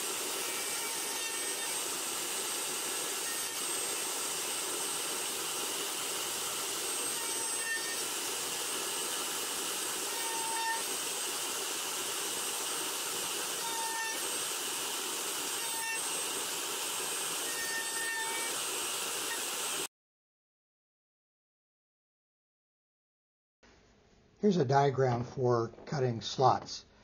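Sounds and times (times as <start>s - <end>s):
router cutting wood with whine: 0.0s - 18.6s.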